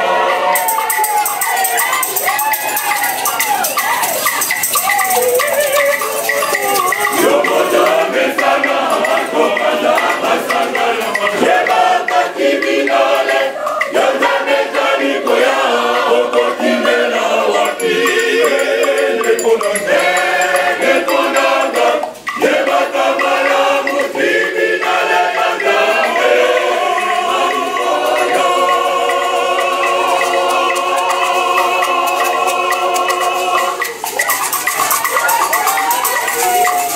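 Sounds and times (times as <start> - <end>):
choir singing gospel: 0.0 - 36.9.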